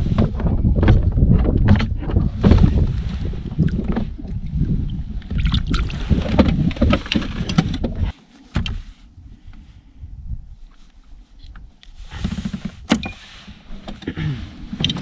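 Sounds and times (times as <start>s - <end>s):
low rumble: 0.0s - 8.1s
knocking and handling on kayak: 0.0s - 8.9s.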